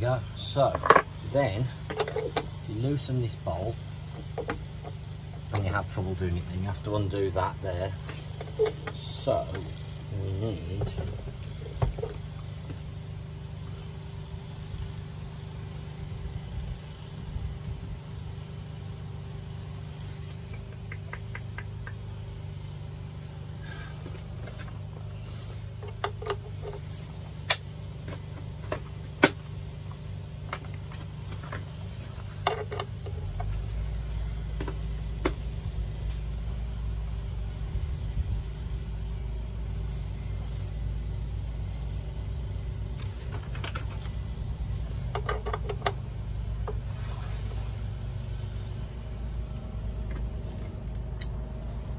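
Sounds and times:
steady low rumble: 14.2s - 18.8s, 33.0s - 45.1s.

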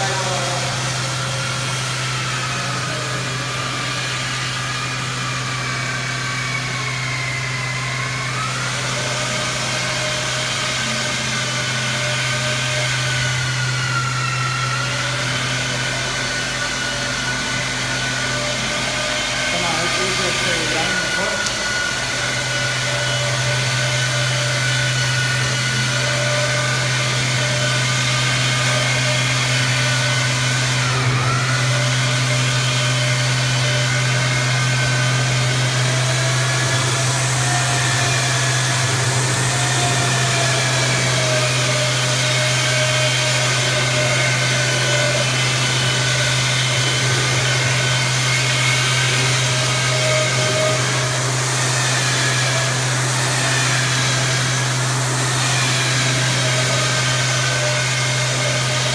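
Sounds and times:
machine motor humming and whining: 0.0s - 58.9s.

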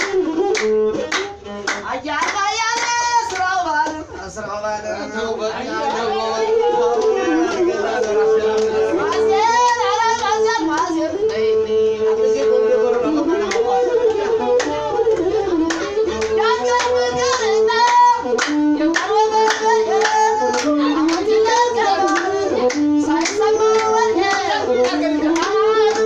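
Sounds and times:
bowed one-string fiddle: 0.0s - 3.4s, 5.0s - 26.0s
hand clapping: 0.0s - 4.0s, 7.0s - 9.8s, 14.6s - 26.0s
person singing: 5.8s - 26.0s.

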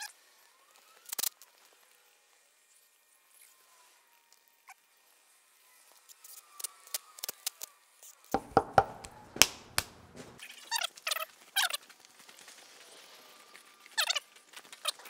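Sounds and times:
plastic clicks and knocks: 8.4s - 9.6s.

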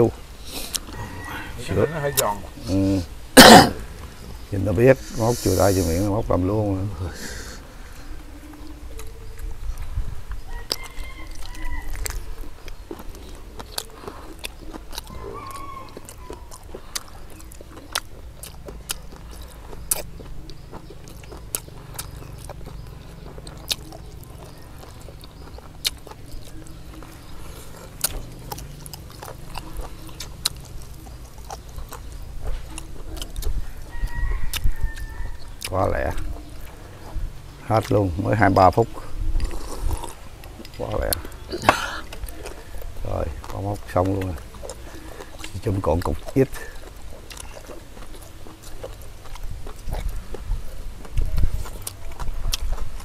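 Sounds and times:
people chewing crunchy cartilage: 0.0s - 53.0s.

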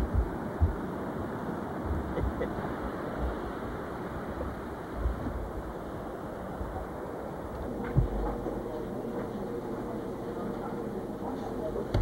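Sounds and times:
gusts buffeting microphone: 0.0s - 9.1s.

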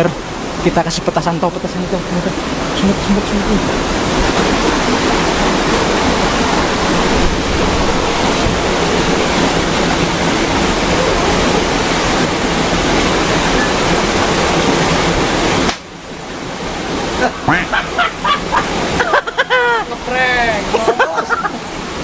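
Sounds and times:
rushing water: 0.0s - 22.0s.

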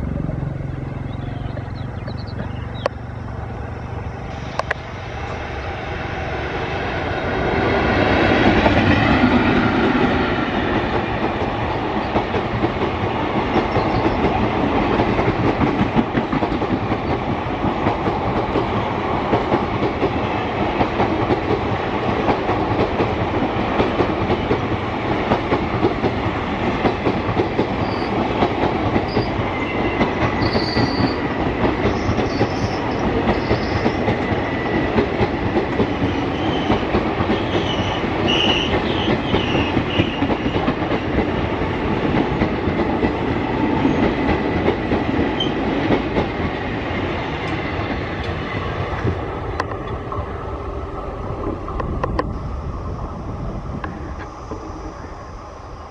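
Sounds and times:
train wheels clattering over rails: 6.4s - 52.3s
high wheel squeals: 29.1s - 31.2s, 31.9s - 34.1s.

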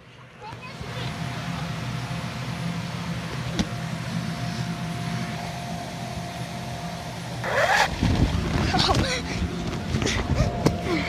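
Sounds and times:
air blower humming and whining: 0.0s - 11.0s.

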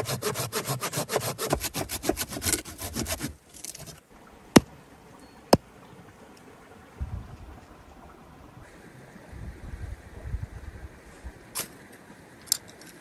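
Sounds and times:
hand saw cutting a log: 0.0s - 4.0s.

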